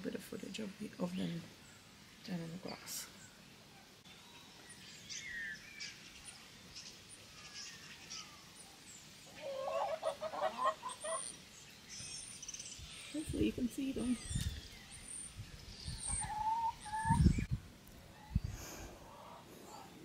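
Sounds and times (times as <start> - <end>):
small birds chirping: 0.0 - 20.0
hens clucking: 9.4 - 11.4.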